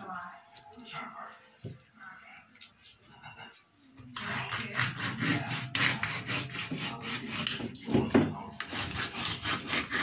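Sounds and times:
knife sawing through raw chicken: 4.2s - 7.9s, 8.5s - 10.0s.

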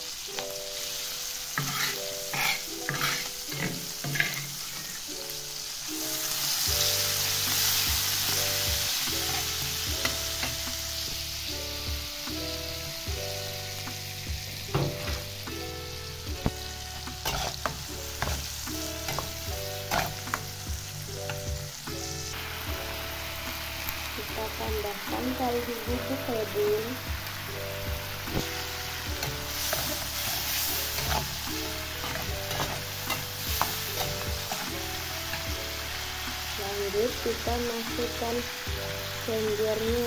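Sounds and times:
background music: 0.0s - 40.0s
food sizzling in hot oil: 0.0s - 40.0s
metal spatula scraping pan: 1.5s - 5.1s, 16.9s - 20.6s, 29.2s - 35.6s.

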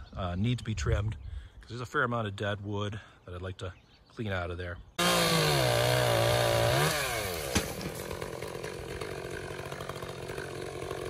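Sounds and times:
chainsaw revving and idling: 5.0s - 11.0s.

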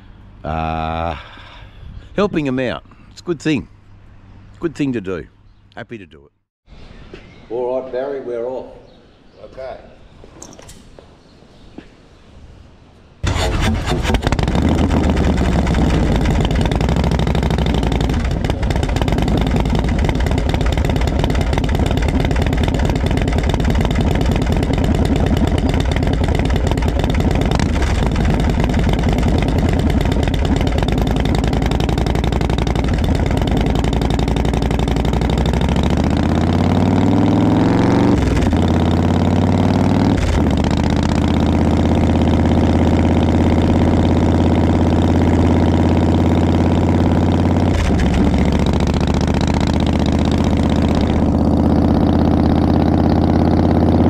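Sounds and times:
motorcycle engine revving: 13.2s - 54.0s.

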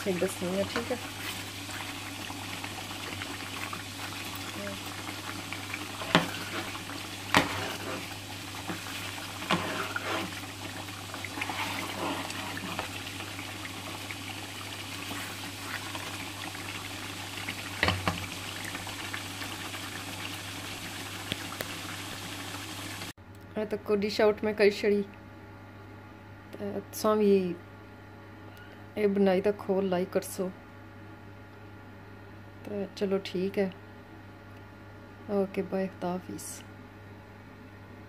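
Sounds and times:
curry bubbling in a pot: 0.0s - 23.1s.

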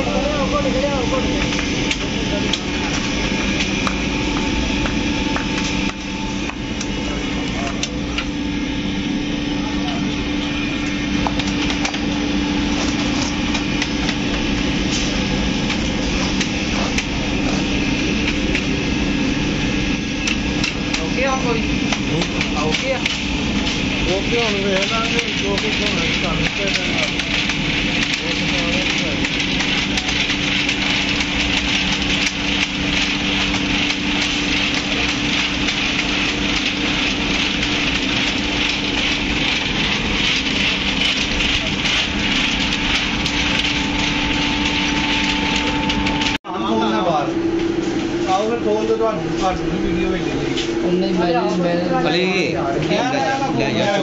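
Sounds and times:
machinery hum: 0.0s - 54.0s.

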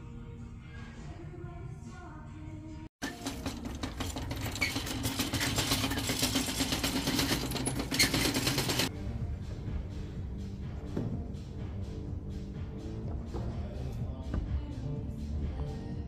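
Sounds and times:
background music: 0.0s - 16.0s
shopping cart rattling: 3.0s - 8.9s.

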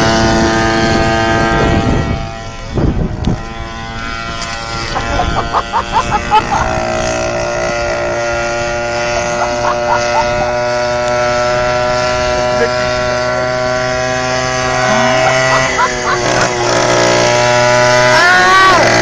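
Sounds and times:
small petrol engine droning: 0.0s - 19.0s.

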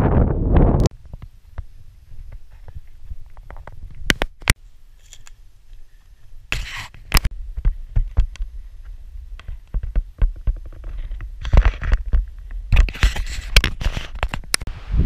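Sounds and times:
wind buffeting microphone: 0.0s - 1.2s, 14.5s - 15.0s
scattered clicks and knocks: 9.4s - 14.7s.

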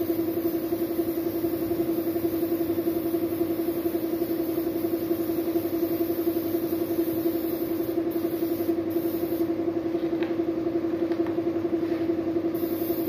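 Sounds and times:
paint spray gun hissing: 0.0s - 9.5s, 12.6s - 13.0s
air compressor pulsing hum: 0.0s - 13.0s.

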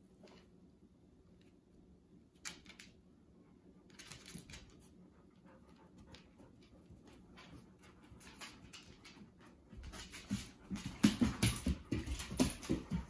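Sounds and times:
dog claws clicking on tile: 2.4s - 3.0s, 3.8s - 13.0s.

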